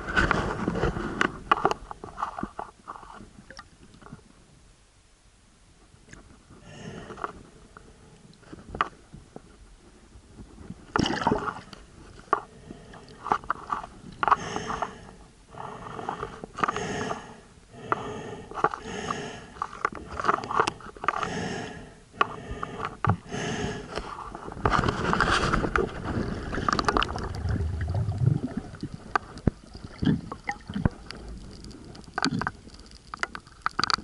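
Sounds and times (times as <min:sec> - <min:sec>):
muffled water sloshing: 0:25.4 - 0:32.9.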